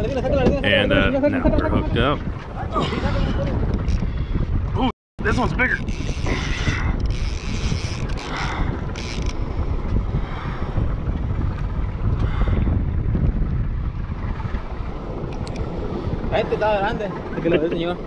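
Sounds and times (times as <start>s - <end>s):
wind rumbling on microphone: 0.0s - 18.0s
fishing reel cranking: 5.3s - 9.4s.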